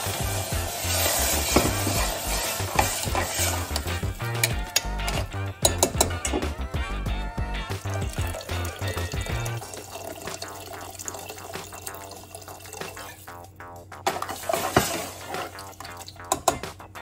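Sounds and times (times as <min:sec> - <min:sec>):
water pouring into a pot: 0:00.0 - 0:04.5, 0:07.6 - 0:16.4
spoon stirring: 0:00.0 - 0:06.5
spoon knocking against pot: 0:03.7 - 0:06.5, 0:16.2 - 0:16.8.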